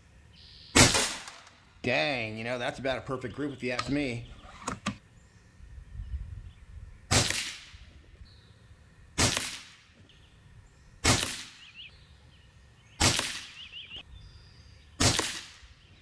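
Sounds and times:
air rifle shots: 0.8 - 1.6, 7.1 - 7.9, 9.2 - 10.0, 11.0 - 11.7, 13.0 - 13.7, 15.0 - 15.8.

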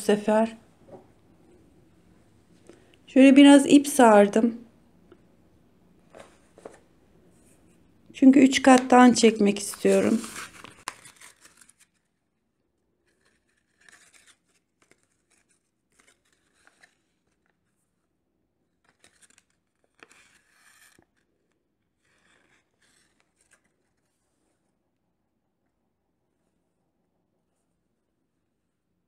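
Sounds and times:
soft yarn rustling: 9.1 - 10.9.

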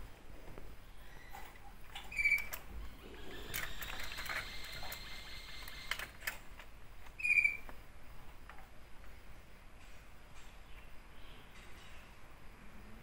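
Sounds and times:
chick squeaky call: 7.2 - 7.7.

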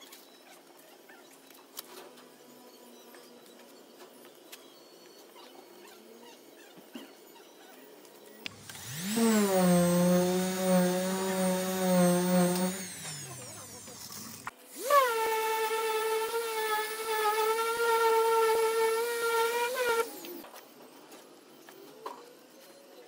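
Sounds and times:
random orbital sander whine: 8.5 - 20.5.

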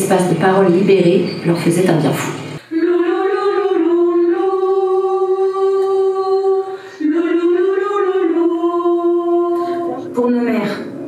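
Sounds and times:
person singing unaccompanied: 2.6 - 10.2.

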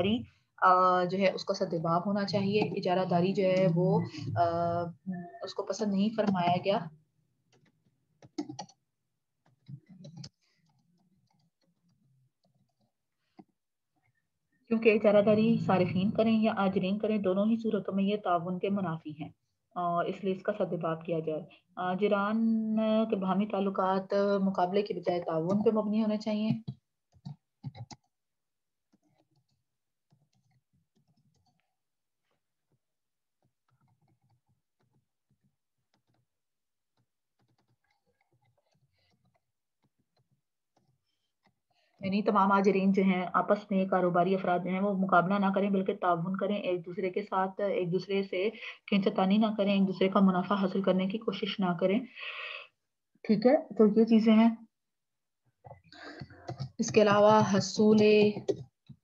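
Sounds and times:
keyboard typing: 1.1 - 6.9, 7.5 - 13.7, 23.0 - 28.2, 28.9 - 31.8, 33.4 - 36.3, 36.9 - 48.2, 55.6 - 59.0.

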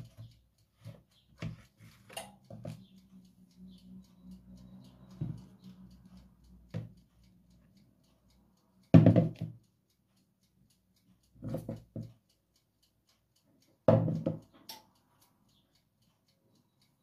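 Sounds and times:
plastic bowl knocking on countertop: 9.0 - 9.3.

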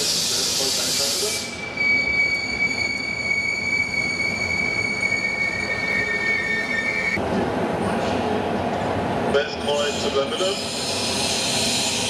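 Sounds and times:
train wheels squealing: 0.0 - 7.2, 9.7 - 12.0
train rumbling: 0.0 - 12.0.

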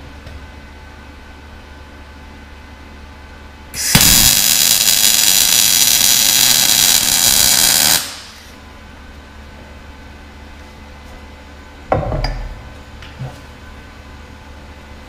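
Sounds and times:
welding arc sizzling: 3.8 - 8.6.

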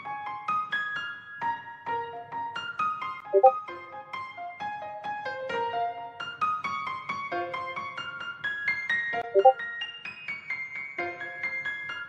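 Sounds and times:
piano melody: 3.4 - 3.6, 9.2 - 9.6.

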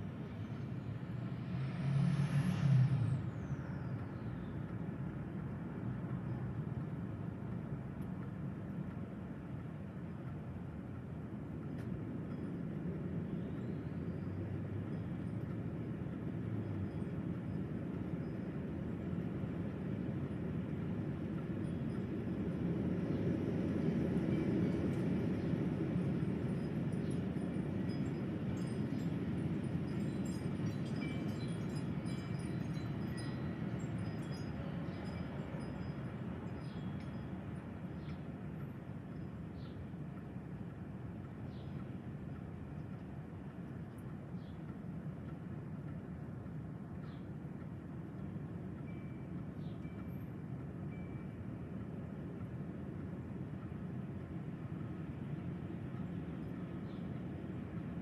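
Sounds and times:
gusty wind through trees: 0.0 - 58.0
wind chimes tinkling: 26.2 - 39.2.

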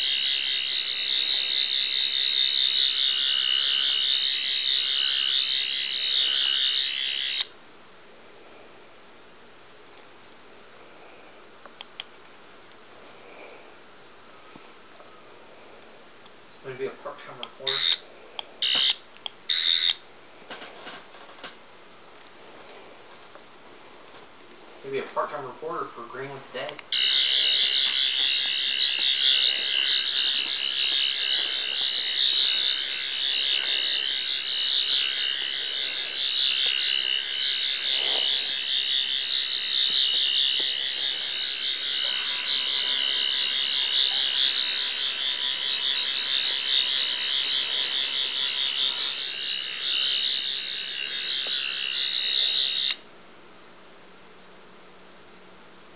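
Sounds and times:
toy sonic screwdriver warbling whine: 0.0 - 7.5, 17.6 - 18.0, 18.6 - 20.0, 26.9 - 53.0.

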